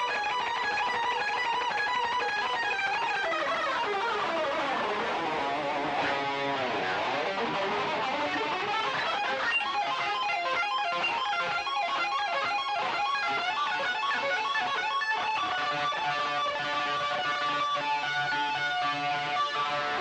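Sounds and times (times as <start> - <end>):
electric guitar soundtrack music: 0.0 - 20.0.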